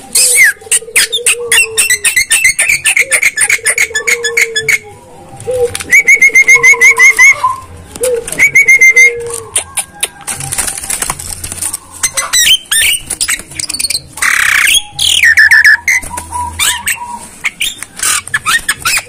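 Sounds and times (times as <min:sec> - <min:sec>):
bird chattering calls: 0:00.1 - 0:04.8, 0:11.9 - 0:19.0
bird whistled notes: 0:08.4 - 0:10.3, 0:11.8 - 0:19.0.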